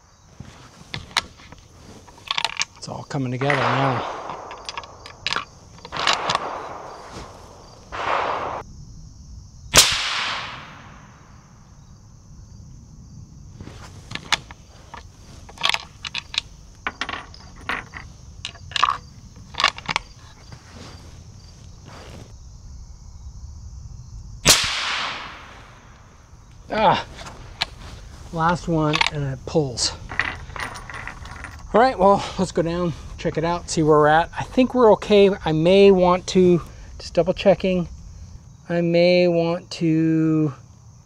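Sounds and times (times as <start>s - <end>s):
metallic clicks of rifle handling: 0.9s - 7.6s, 14.0s - 20.1s, 28.9s - 29.2s
suppressed rifle shots: 3.4s - 8.7s, 9.7s - 11.4s, 24.4s - 26.0s.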